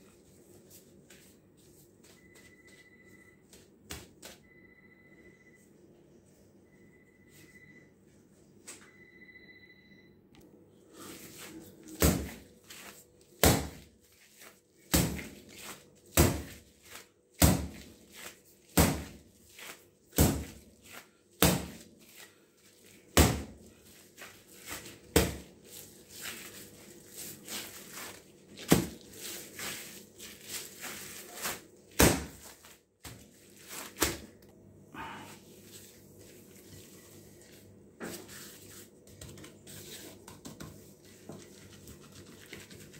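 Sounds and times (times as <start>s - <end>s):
dough thudding on countertop: 11.9s - 12.4s, 13.4s - 13.9s, 14.9s - 17.9s, 18.7s - 21.9s, 23.1s - 23.6s, 24.7s - 25.5s, 28.6s - 29.0s, 31.4s - 33.3s.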